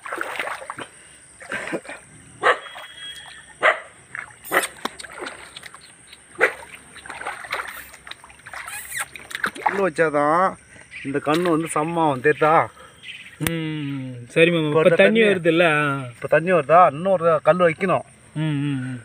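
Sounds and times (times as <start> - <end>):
splashing stream water: 0.0 - 12.8.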